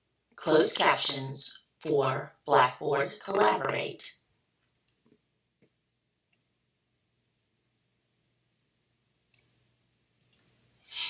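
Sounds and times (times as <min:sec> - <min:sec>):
computer mouse clicks: 0:04.6 - 0:05.2, 0:09.3 - 0:09.5, 0:10.2 - 0:10.6.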